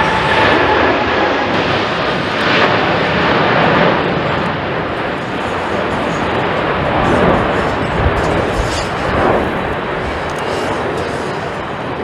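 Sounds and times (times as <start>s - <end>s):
jet engines roaring overhead: 0.0s - 12.0s.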